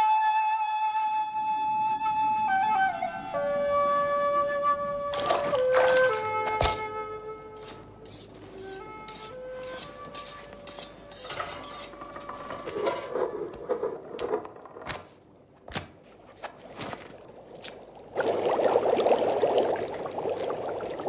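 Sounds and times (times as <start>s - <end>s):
dishes and utensils clattering: 7.6s - 14.5s.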